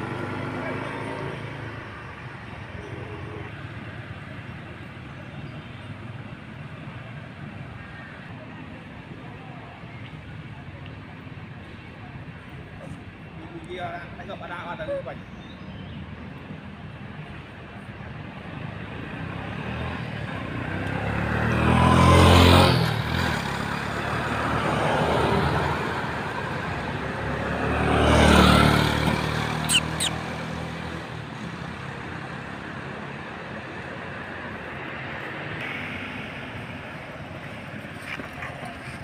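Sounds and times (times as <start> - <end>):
vehicles passing by: 0.0 - 39.0
sharp high clicks: 29.7 - 30.2.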